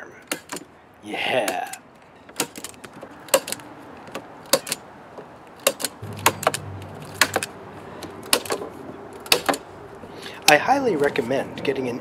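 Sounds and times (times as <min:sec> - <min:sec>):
low hum: 0:06.0 - 0:09.2.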